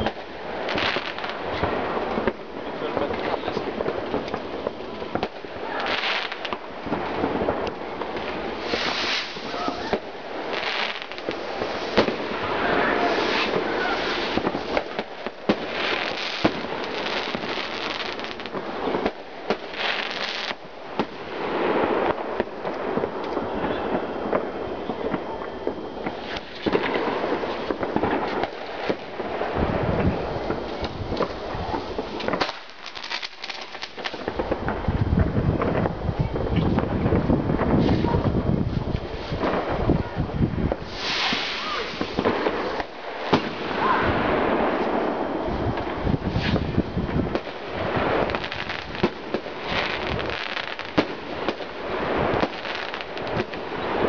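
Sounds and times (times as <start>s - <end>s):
fireworks crackling: 0.0s - 54.0s
fireworks shells bursting: 3.0s - 34.8s, 40.7s - 43.8s.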